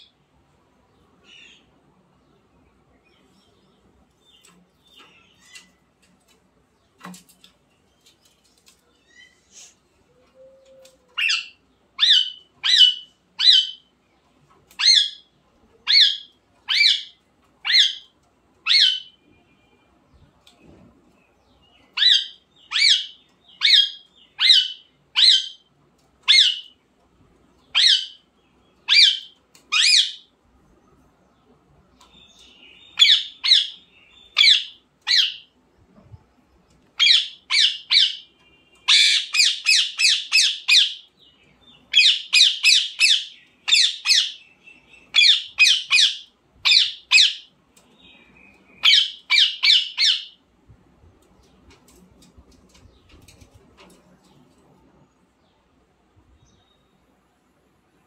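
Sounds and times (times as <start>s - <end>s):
parakeet squawking: 11.2s - 13.9s, 15.9s - 18.0s, 18.7s - 19.2s, 22.0s - 25.7s, 27.7s - 28.2s, 28.9s - 30.3s, 33.0s - 35.5s, 37.0s - 38.3s, 38.9s - 41.1s, 41.9s - 44.4s, 45.1s - 47.5s, 48.8s - 50.4s.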